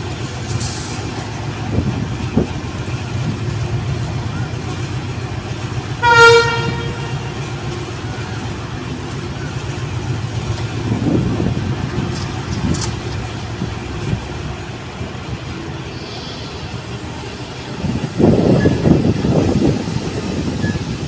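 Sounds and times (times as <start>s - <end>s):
train wheels rumbling over rail joints: 0.0s - 21.0s
train horn: 6.0s - 7.5s.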